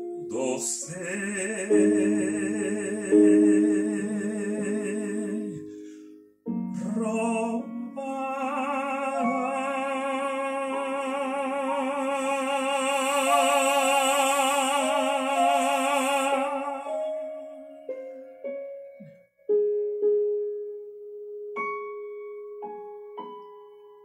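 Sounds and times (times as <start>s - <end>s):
operatic solo singing: 0.3s - 5.7s, 6.8s - 17.8s.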